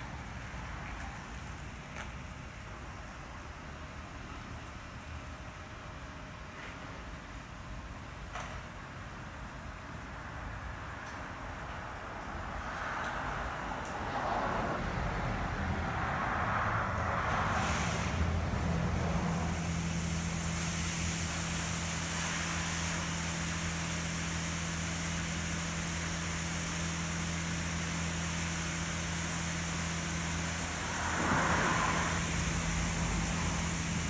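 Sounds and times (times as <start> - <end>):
high-pressure water spray hissing: 17.2 - 34.0
steady low hum: 18.1 - 34.0.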